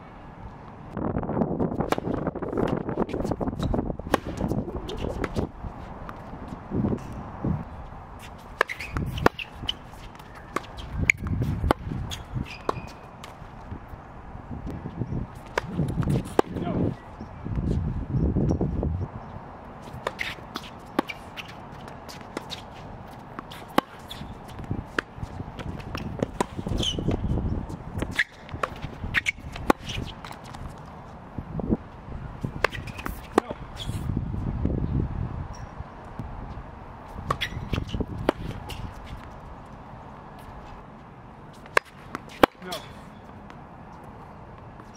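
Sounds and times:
racket hitting tennis ball: 1.8s - 7.2s, 8.2s - 13.8s, 15.4s - 16.8s, 19.8s - 31.2s, 32.4s - 34.1s, 37.0s - 40.6s, 41.5s - 43.6s
shoe squeaks: 4.6s - 5.5s, 8.2s - 13.5s, 19.2s - 30.9s, 32.4s - 34.1s, 35.5s - 35.8s, 37.1s - 39.4s.

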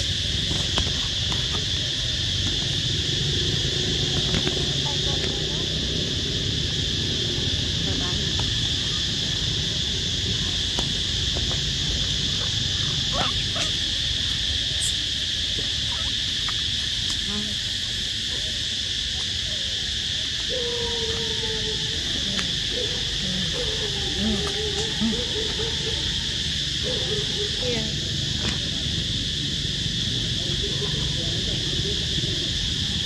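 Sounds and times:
insects droning: 0.0s - 33.0s
faint wavering calls: 11.7s - 16.6s.

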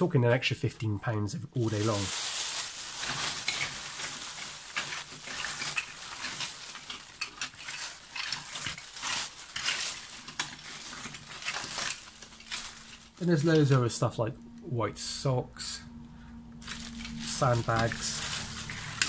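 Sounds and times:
rummaging through plastic toy parts: 1.6s - 14.0s, 16.6s - 19.0s.

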